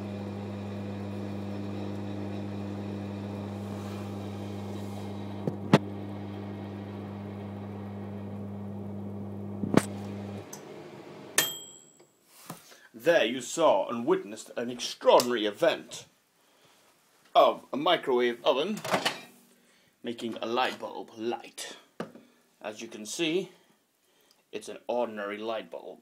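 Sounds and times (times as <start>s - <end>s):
microwave oven hum: 0.0s - 11.4s.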